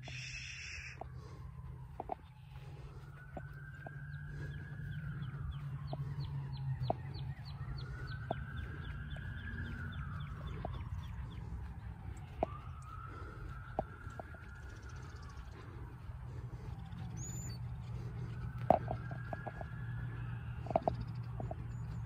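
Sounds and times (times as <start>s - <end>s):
alpacas calling shrilly: 0.0s - 1.0s
steady low rumble: 0.0s - 22.0s.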